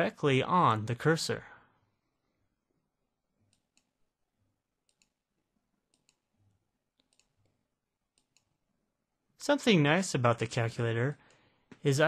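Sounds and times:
faint mouse clicks: 3.5s - 3.9s, 4.9s - 5.2s, 5.9s - 6.2s, 7.0s - 8.5s.

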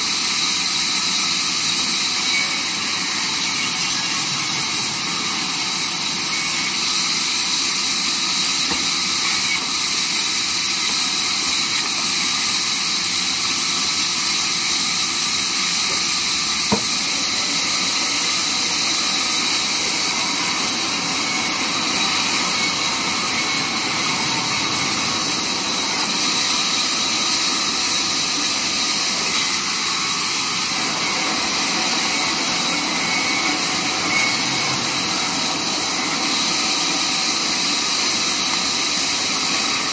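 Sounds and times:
band saw cutting wood: 0.0s - 39.9s
band saw running: 0.0s - 39.9s
sharp knock: 16.7s - 16.9s.

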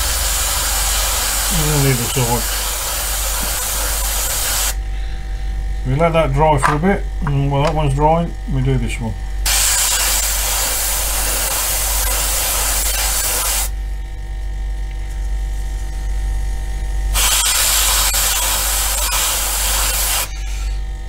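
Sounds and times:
airbrush hiss: 0.0s - 4.8s, 9.5s - 13.7s, 17.2s - 20.8s
steady hum: 0.0s - 21.0s.

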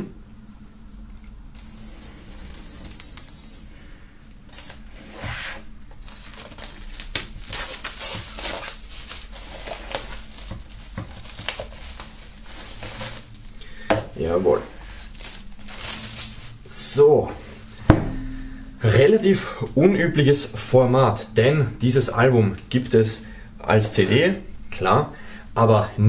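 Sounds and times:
plastic wrap crinkling and tearing: 1.6s - 3.6s, 4.2s - 16.7s.

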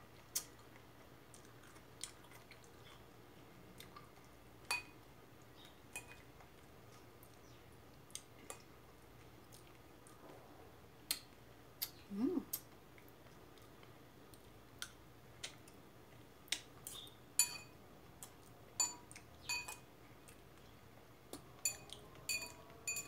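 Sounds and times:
cutlery clinking on ceramic bowl: 4.7s - 5.0s, 5.9s - 6.2s, 17.4s - 17.8s, 18.8s - 19.8s, 21.6s - 23.0s
person humming: 12.1s - 12.6s.

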